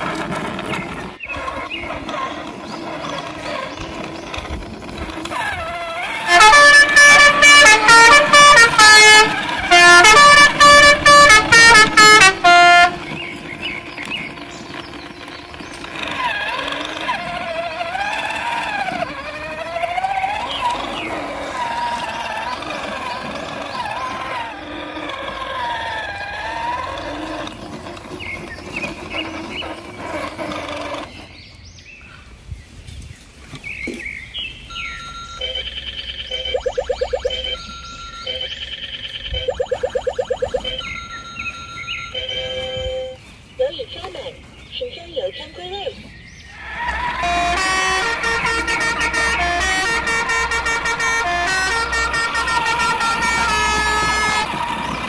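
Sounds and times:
horn honking short blasts: 6.0 - 13.4, 46.6 - 55.0
wavering pitched sound: 35.4 - 42.6.

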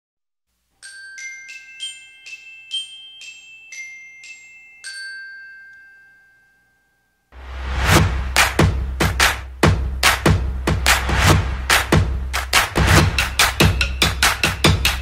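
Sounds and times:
bell-like logo jingle: 0.8 - 7.9.

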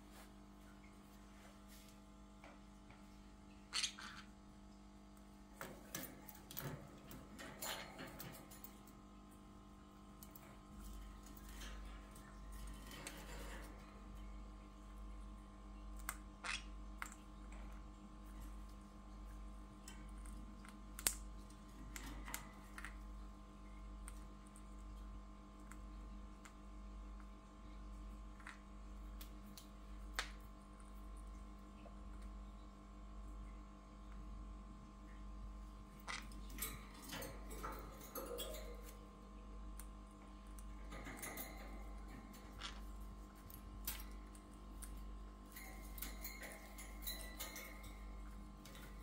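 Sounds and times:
steady low hum: 0.0 - 49.0
claws and beaks tapping cage bars: 5.5 - 15.2, 15.8 - 26.6, 35.5 - 49.0.

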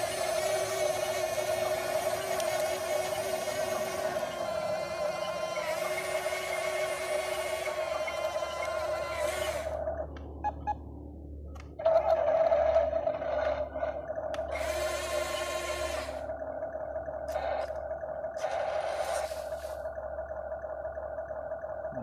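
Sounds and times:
toy truck motor whining: 0.0 - 10.7, 11.8 - 16.4, 17.2 - 19.9
steady hum: 0.0 - 22.0.

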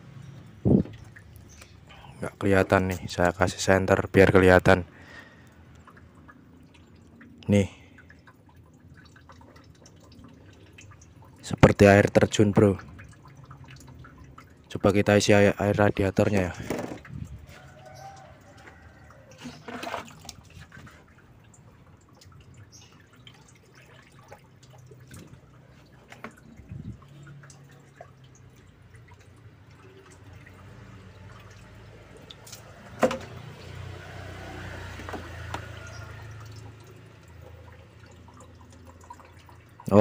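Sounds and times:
water splashing and dripping: 0.0 - 40.0
small knocks: 16.6 - 17.1.

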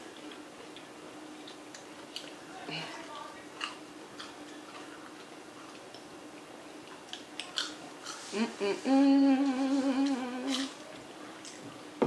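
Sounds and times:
crunching of fried food: 6.9 - 8.3
person humming mmm: 8.2 - 10.8.

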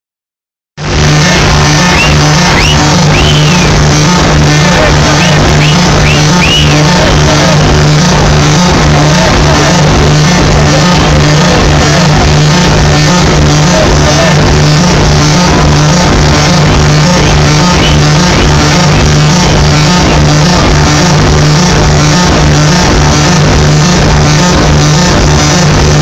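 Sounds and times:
pulsing low bass note: 0.8 - 26.0
crowd shouting: 1.4 - 14.4
short high whistles: 1.9 - 3.8, 5.2 - 6.8.

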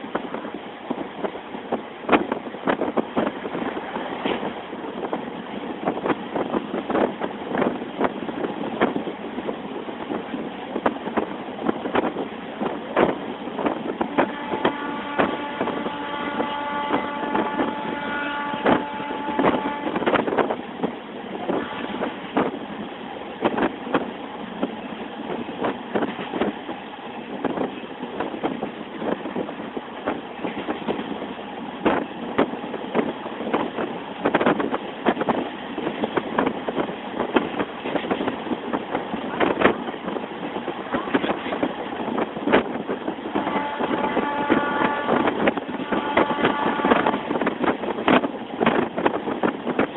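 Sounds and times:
train wheels clattering on rails: 0.0 - 49.9
train horn: 14.1 - 20.2, 21.6 - 22.1, 43.3 - 47.5.

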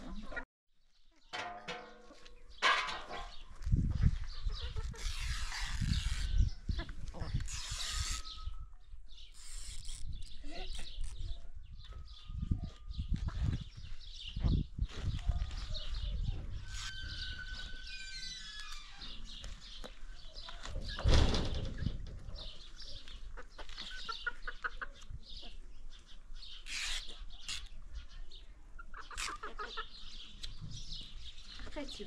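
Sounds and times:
chickens clucking: 0.0 - 0.4, 1.4 - 5.1, 19.4 - 25.9, 28.6 - 30.7.

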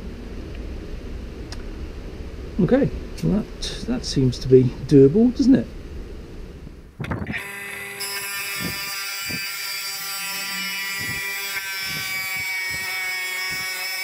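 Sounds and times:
table saw whining: 7.2 - 14.0.

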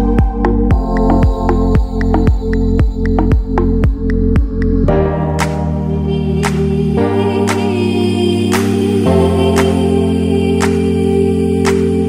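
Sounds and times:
soft beat: 0.0 - 5.6
sustained synth chords: 0.0 - 12.0.

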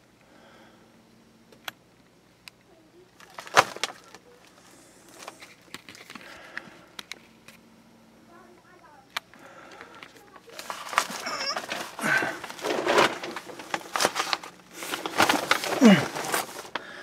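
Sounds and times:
rustling over plastic sheeting: 3.2 - 6.2, 10.2 - 17.0.

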